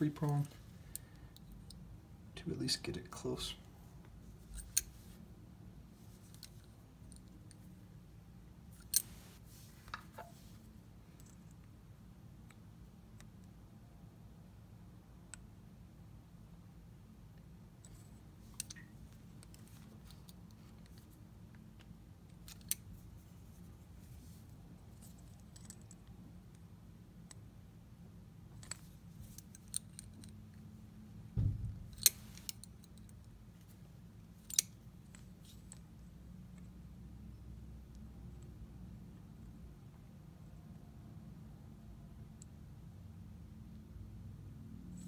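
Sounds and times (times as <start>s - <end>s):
low steady hum: 0.0s - 45.0s.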